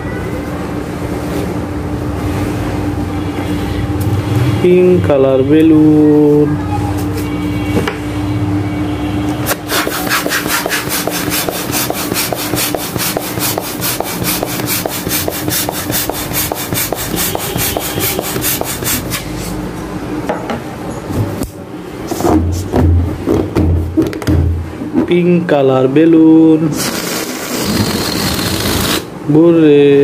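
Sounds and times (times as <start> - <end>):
hand pump whooshing: 9.5 - 19.3, 26.8 - 29.1.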